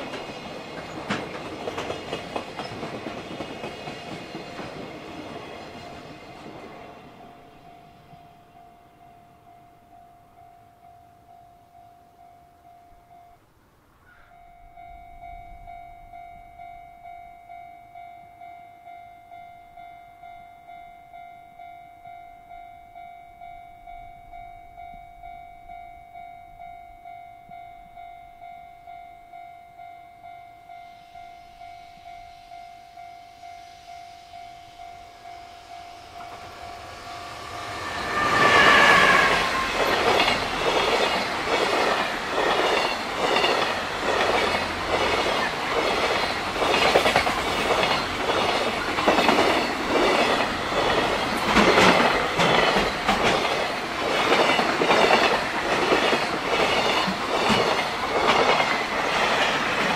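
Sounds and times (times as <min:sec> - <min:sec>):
freight train passing: 0:00.0 - 0:13.5, 0:14.3 - 0:59.9
level crossing alarm ringing: 0:14.5 - 0:59.9.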